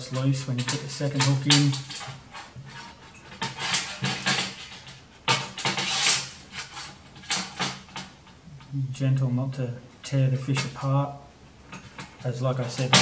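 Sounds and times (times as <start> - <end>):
rustling and scraping of fish bait: 0.0 - 8.4.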